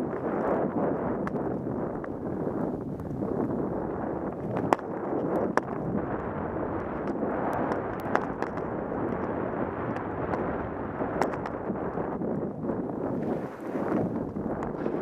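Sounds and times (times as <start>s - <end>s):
wind on microphone: 0.0s - 15.0s
skis through powder snow: 13.0s - 15.0s.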